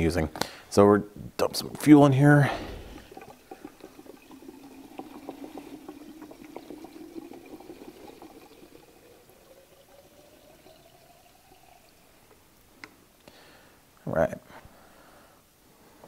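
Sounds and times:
liquid gurgles: 2.1s - 12.8s
fuel pouring into tank: 2.2s - 12.7s.

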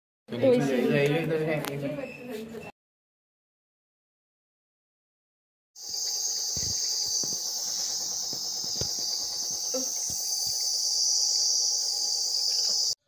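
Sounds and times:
nebulizer hissing: 5.8s - 13.0s.

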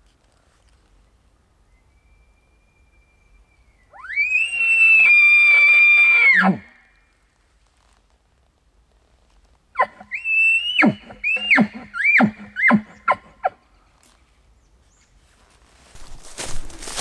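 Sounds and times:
elk bugling: 9.8s - 13.6s.

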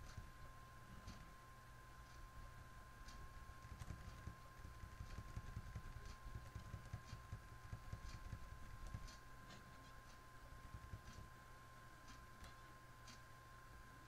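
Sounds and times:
faint high whine: 0.0s - 14.0s
computer keys clicking: 3.0s - 11.3s.

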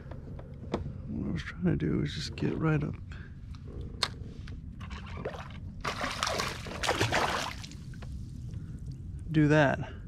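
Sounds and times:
water splashing by kayak: 4.9s - 7.8s.

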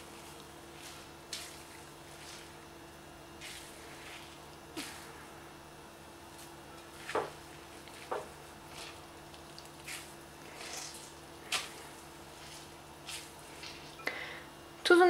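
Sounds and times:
soft squelches of squeezed potato: 7.0s - 14.0s.

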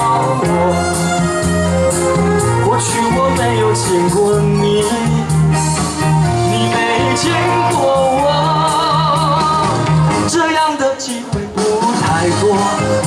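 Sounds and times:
person singing: 0.0s - 13.0s
slow pop backing music: 0.0s - 13.0s.

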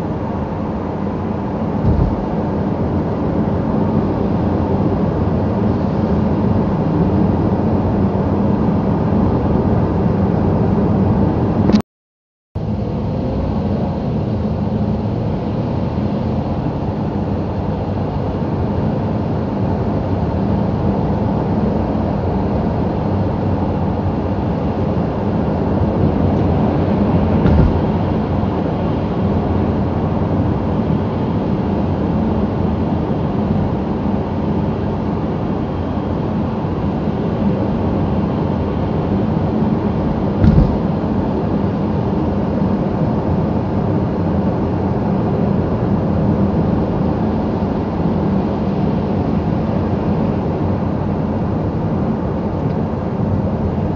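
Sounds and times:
car engine and tyres on wet road: 1.8s - 2.6s, 25.0s - 29.6s, 36.8s - 41.4s.

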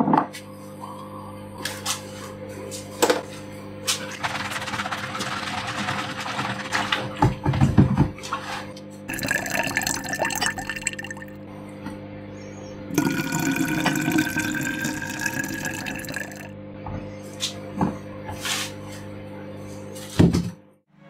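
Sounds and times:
liquid pouring into a glass cup: 9.1s - 11.4s, 12.9s - 16.5s.

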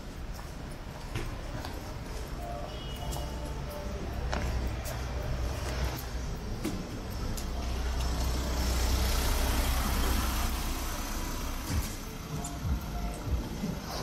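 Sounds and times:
low traffic rumble: 0.0s - 14.0s
car driving slowly past: 3.5s - 14.0s.

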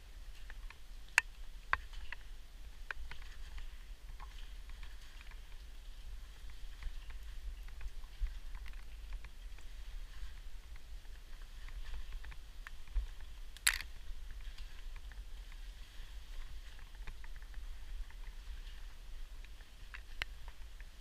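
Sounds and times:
climbing gear clicking and knocking: 13.6s - 14.0s.

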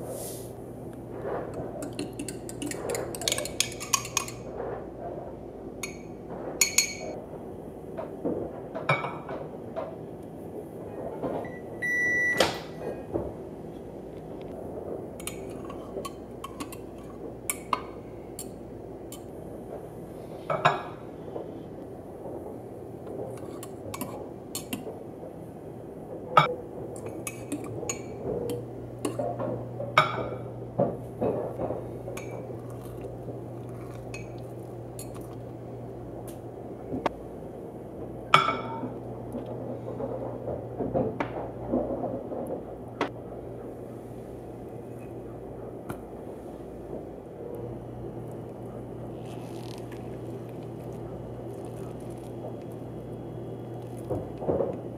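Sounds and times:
cutlery clinking against mug: 1.8s - 4.4s
microwave oven hum: 11.4s - 23.1s, 26.7s - 54.9s.

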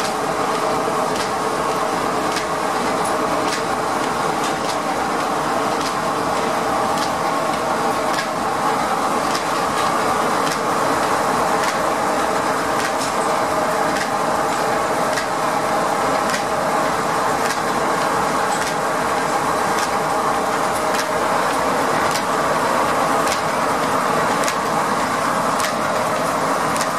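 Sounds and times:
steam sawmill machinery running: 0.0s - 26.9s
sharp mechanical tick: 1.1s - 1.4s, 2.3s - 2.6s, 3.4s - 4.8s, 5.8s - 6.0s, 7.0s - 8.4s, 9.2s - 10.7s, 11.6s - 11.8s, 12.8s - 13.2s, 13.9s - 15.4s, 16.2s - 16.5s, 17.4s - 17.7s, 18.5s - 18.8s, 19.7s - 20.0s, 20.8s - 22.3s, 23.2s - 23.5s, 24.4s - 24.7s, 25.6s - 26.9s.

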